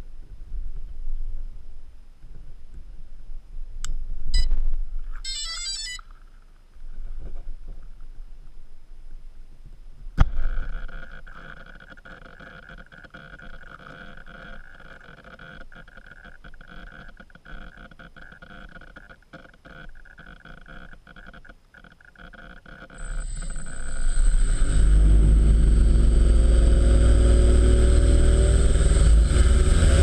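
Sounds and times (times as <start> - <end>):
rapid electronic beeps: 5.2 - 6.1
high electric motor whine: 22.9 - 30.0.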